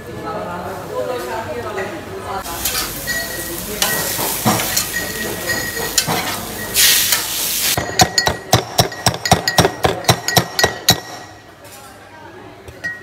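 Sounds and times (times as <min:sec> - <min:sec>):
fish sizzling on griddle: 0:02.4 - 0:07.8
pestle pounding in stone mortar: 0:07.8 - 0:11.2.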